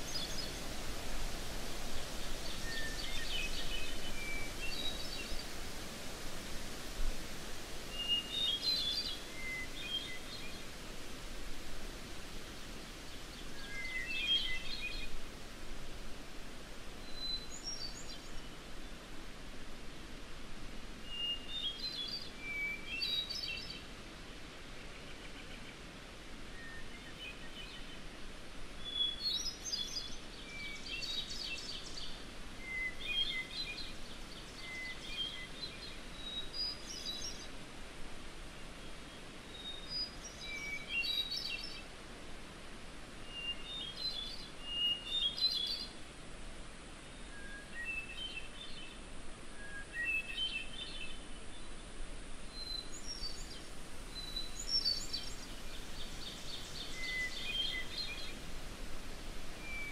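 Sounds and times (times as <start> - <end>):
outdoor background hiss: 0.0 - 59.9
songbird singing fluting phrases: 52.5 - 58.4.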